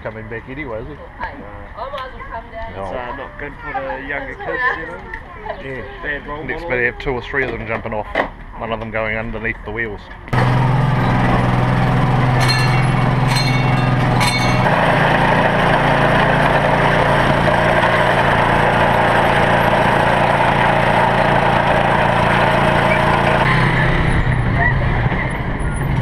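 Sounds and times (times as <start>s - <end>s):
miniature train engine running: 10.4s - 23.5s
sharp metallic clinks: 12.4s - 14.8s.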